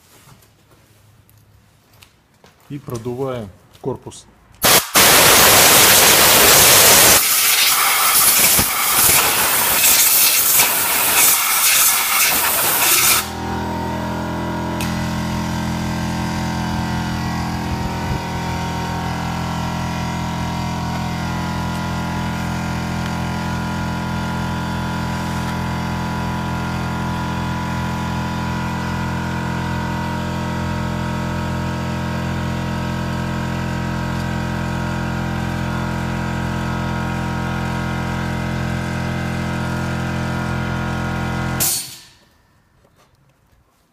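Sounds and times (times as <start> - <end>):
compressed air blow gun hissing: 4.6 - 13.3
steady machine drone: 4.6 - 42.2.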